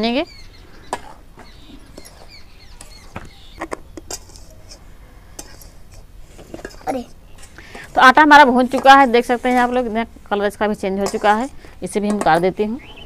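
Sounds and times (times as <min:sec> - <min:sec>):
metal spatula scraping a pan: 0:00.8 - 0:10.1.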